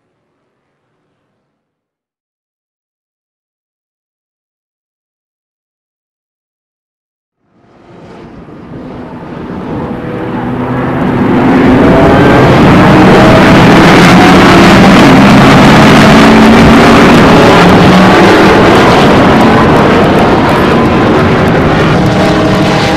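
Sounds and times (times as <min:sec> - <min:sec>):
engine running hard: 0:07.4 - 0:22.9.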